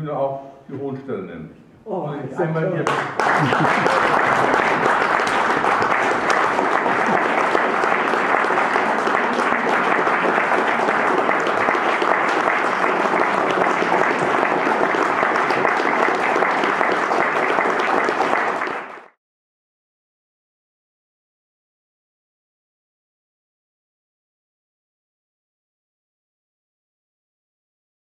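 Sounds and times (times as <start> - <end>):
audience applauding: 2.8 - 19.2.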